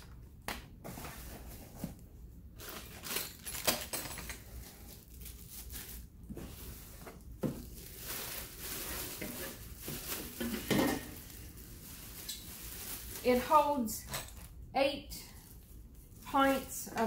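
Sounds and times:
plastic wrap crinkling: 2.5s - 17.0s.

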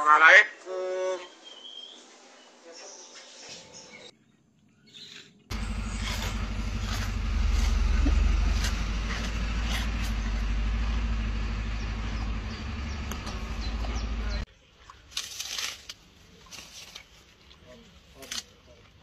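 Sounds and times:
gorilla chewing leaves: 5.5s - 10.8s
loud low steady rumble: 5.5s - 14.5s.

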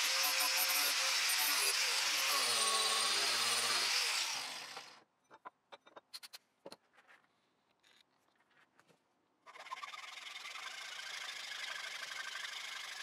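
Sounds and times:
angle grinder: 0.0s - 5.0s, 9.5s - 13.0s.

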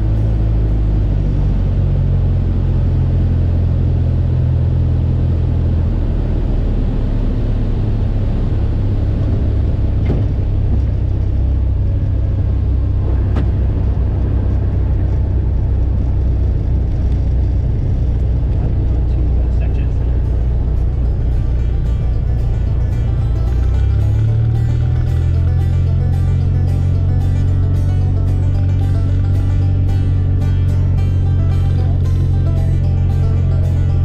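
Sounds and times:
light aircraft engine rumble: 0.0s - 34.0s.

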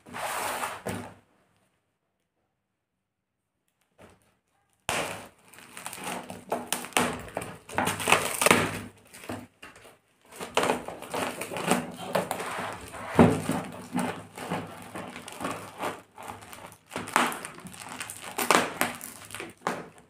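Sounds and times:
tape and plastic tearing: 4.0s - 20.0s
scissors cutting packing tape: 4.9s - 9.3s, 10.3s - 20.0s.

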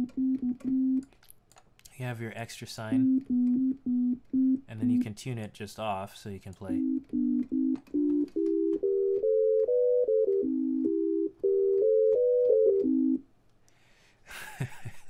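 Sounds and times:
synthesizer melody of held sine notes: 0.0s - 1.0s, 3.0s - 5.1s, 6.7s - 13.2s.

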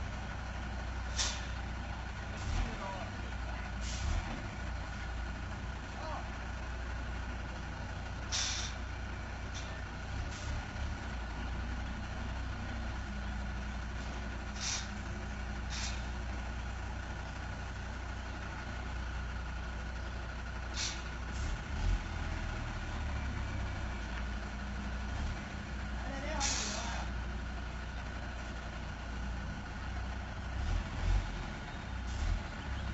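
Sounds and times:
truck diesel engine running: 0.0s - 32.9s
air-brake hisses: 1.1s - 1.6s, 8.3s - 8.8s, 14.5s - 15.0s, 15.7s - 16.2s, 20.7s - 21.1s, 26.4s - 27.0s.

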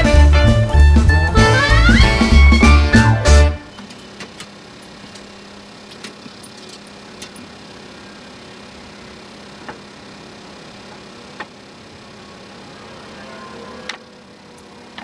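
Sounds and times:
swing music: 0.0s - 3.7s.

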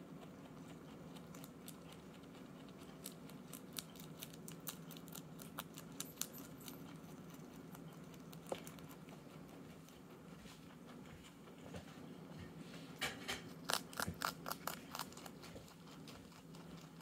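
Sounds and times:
rabbit chewing crunchy greens: 0.0s - 17.0s
steady low hum: 0.0s - 17.0s.

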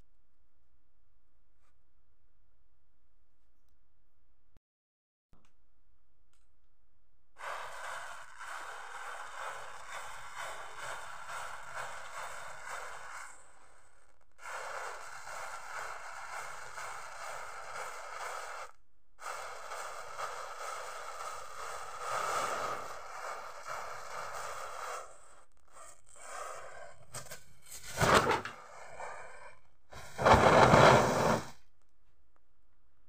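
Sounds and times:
matches flaring with a hiss: 7.4s - 25.5s, 27.8s - 31.6s.

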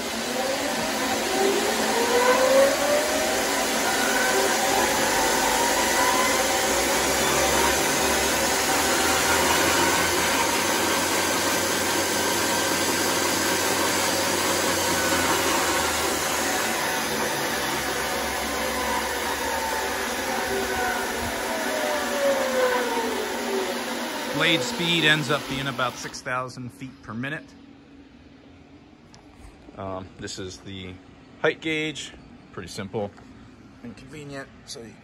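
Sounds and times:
electric chainsaw whining: 0.0s - 26.1s.

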